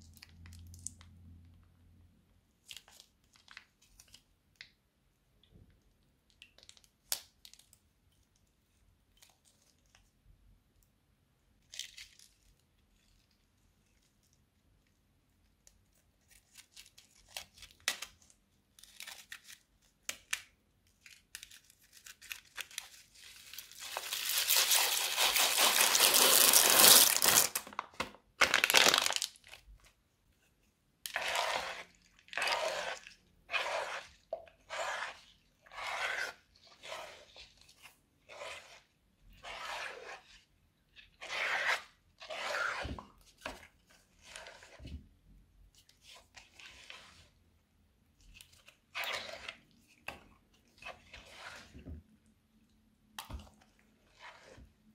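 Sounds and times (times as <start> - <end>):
spatula stirring wet slime: 0.0 - 1.6, 2.4 - 27.4, 29.4 - 54.9
crinkling crackle: 20.3 - 29.8.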